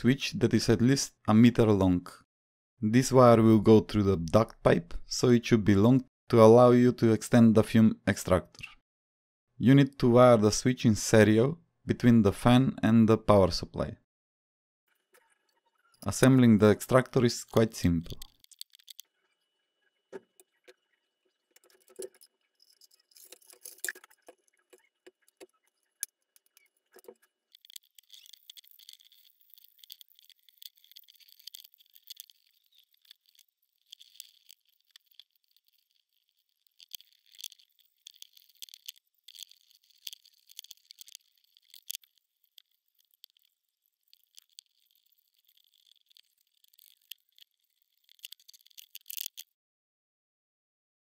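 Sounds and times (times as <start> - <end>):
plastic pieces clicking on table: 17.6 - 19.0, 21.6 - 49.5.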